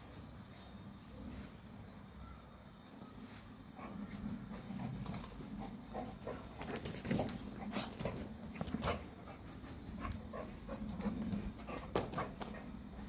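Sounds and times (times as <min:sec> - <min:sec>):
dog sniffing and panting: 0:03.7 - 0:13.0.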